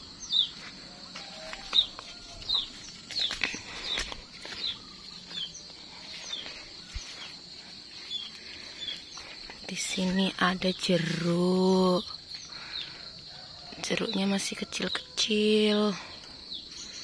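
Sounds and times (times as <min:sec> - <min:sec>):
bird chirping: 0:00.0 - 0:00.7, 0:01.5 - 0:13.0
high-pitched insect hum: 0:00.0 - 0:17.0.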